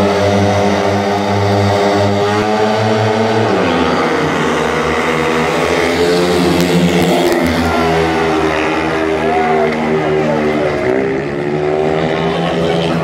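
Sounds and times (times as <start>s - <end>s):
motorcycles racing at high revs: 0.0s - 13.0s.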